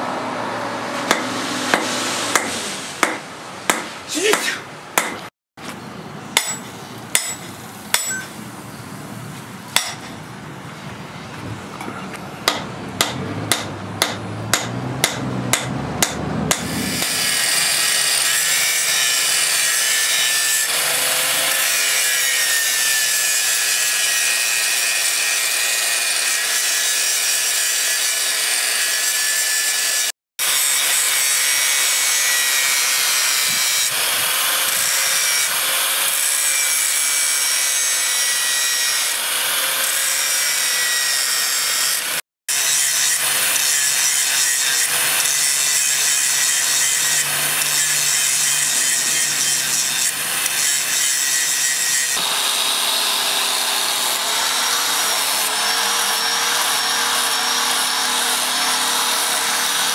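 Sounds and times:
hammer striking steel on anvil: 0.9 - 5.3, 6.4 - 8.4, 9.8 - 10.2, 12.4 - 17.2
angle grinder grinding steel: 13.2 - 59.9.

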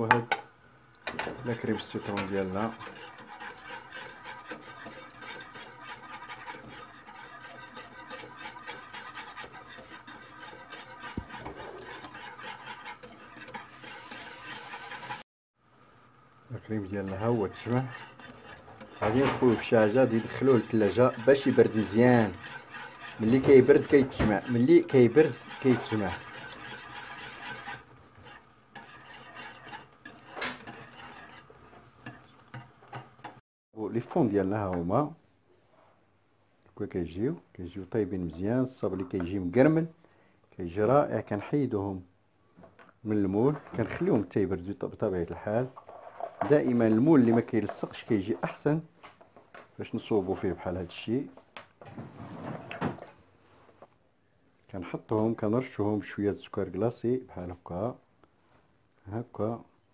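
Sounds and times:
whisk scraping a saucepan: 1.1 - 15.2, 16.6 - 33.4, 43.2 - 44.4, 45.2 - 48.7.

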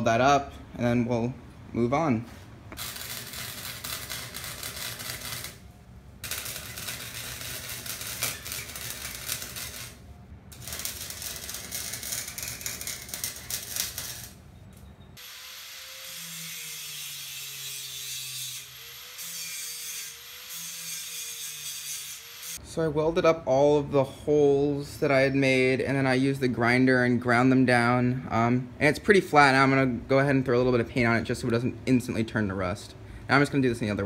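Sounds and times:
arc welder crackling: 2.7 - 22.6
angle grinder grinding: 6.2 - 14.3.

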